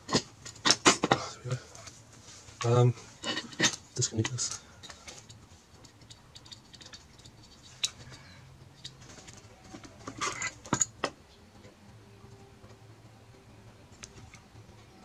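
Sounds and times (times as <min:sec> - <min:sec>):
clicks and scrapes of parts: 0:00.0 - 0:11.2.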